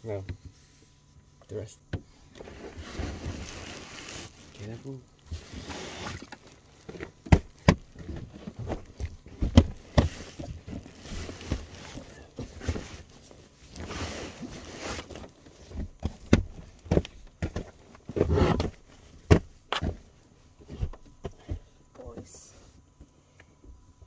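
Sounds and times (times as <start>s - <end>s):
bedding rustling: 2.3s - 21.5s
knocks and thumps: 6.9s - 13.0s, 15.6s - 22.3s.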